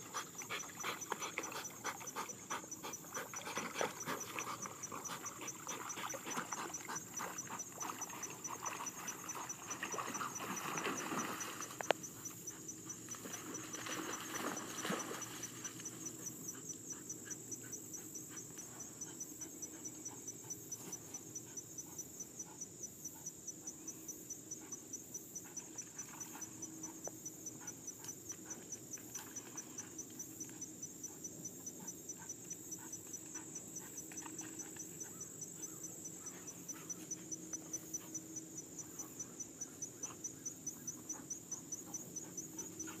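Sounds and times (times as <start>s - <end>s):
crickets chirping: 0.0s - 43.0s
water splashing: 3.2s - 11.8s, 13.2s - 15.6s.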